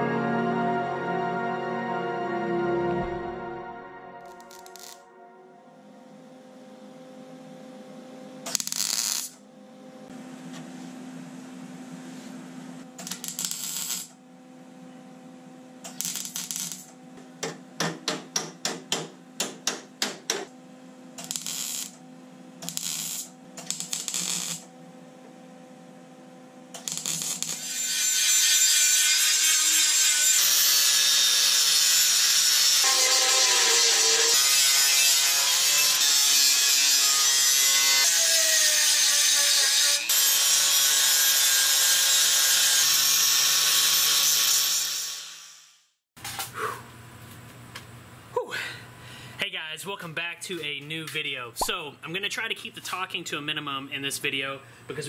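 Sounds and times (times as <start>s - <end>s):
welder crackling: 4.2s - 5.0s, 8.5s - 9.4s, 13.0s - 14.2s, 15.8s - 17.0s, 21.2s - 22.0s, 22.6s - 24.7s, 26.8s - 29.2s
angle grinder grinding: 4.3s - 5.0s, 26.8s - 45.4s.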